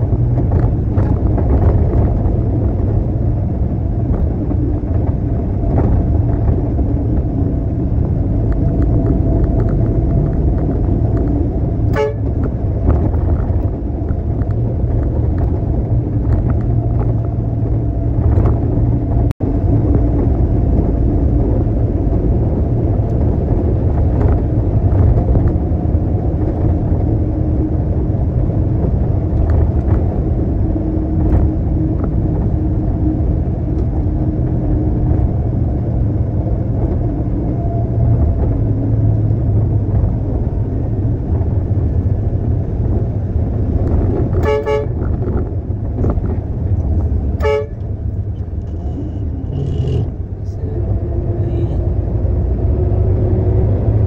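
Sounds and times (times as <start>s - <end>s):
diesel truck engine rumbling: 0.0s - 54.0s
truck horn toot: 11.9s - 12.4s, 44.4s - 45.0s, 47.4s - 47.8s.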